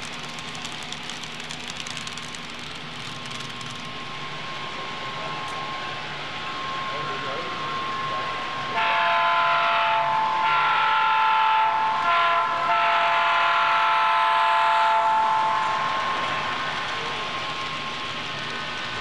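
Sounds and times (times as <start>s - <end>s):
model locomotive air horn: 8.7s - 16.5s.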